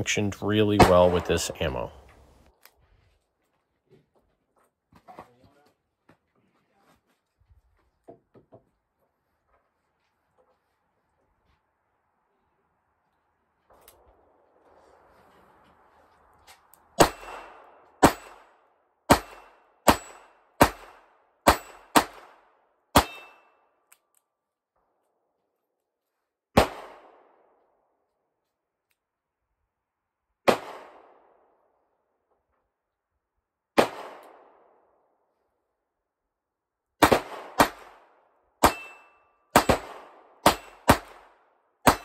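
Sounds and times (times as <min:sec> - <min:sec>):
revolver gunshots: 0:00.6 - 0:02.0, 0:17.0 - 0:18.5, 0:26.6 - 0:27.3, 0:30.5 - 0:31.3, 0:33.8 - 0:34.6, 0:37.0 - 0:38.0, 0:38.6 - 0:42.0.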